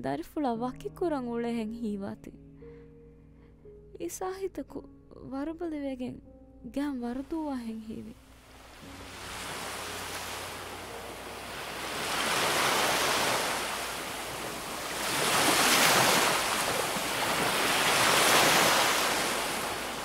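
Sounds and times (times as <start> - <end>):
ocean waves breaking: 8.4 - 20.0.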